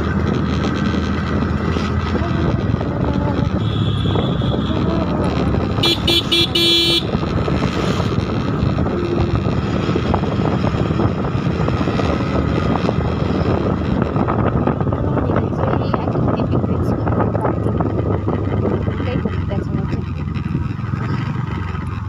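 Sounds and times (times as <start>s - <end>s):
wind on microphone: 0.0s - 21.6s
engine and road noise: 0.0s - 22.0s
vehicle horn toots: 3.6s - 4.9s, 5.8s - 7.2s.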